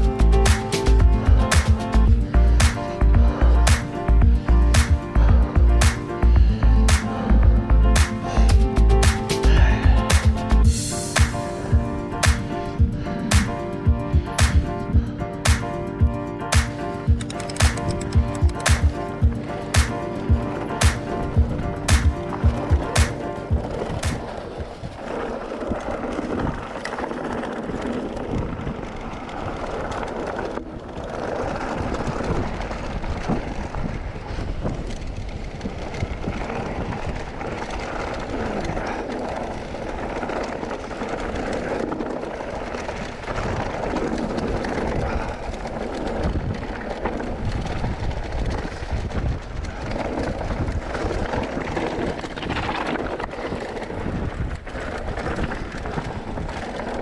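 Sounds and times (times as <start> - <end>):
bike rattling over rocks: 0.0 - 57.0
bike tyre rumble: 0.0 - 57.0.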